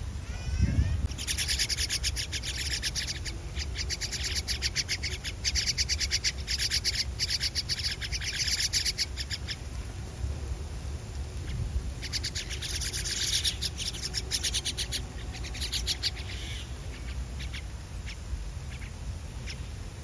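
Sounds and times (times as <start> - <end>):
nestlings chattering begging calls: 0.3 - 9.8, 11.4 - 19.8
rising whistled call: 1.0 - 9.6, 12.0 - 18.9.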